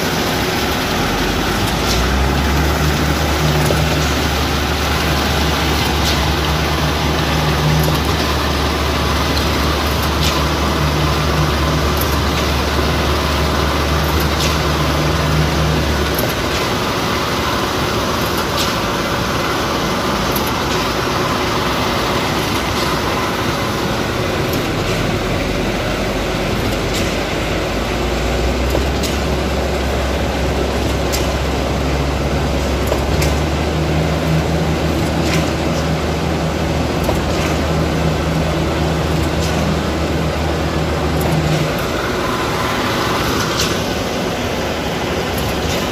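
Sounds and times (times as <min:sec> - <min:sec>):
diesel engine running: 0:00.0 - 0:45.9
sharp clack: 0:35.0 - 0:35.9, 0:43.3 - 0:44.0.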